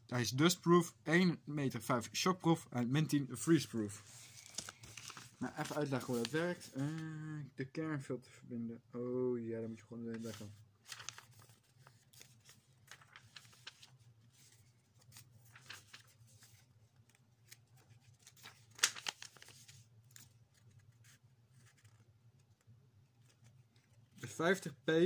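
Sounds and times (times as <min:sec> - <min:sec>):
hands handling plastic packaging: 0:04.4 - 0:06.6, 0:10.2 - 0:14.0, 0:15.0 - 0:16.1, 0:18.3 - 0:19.7
plastic crackle: 0:18.4 - 0:19.6.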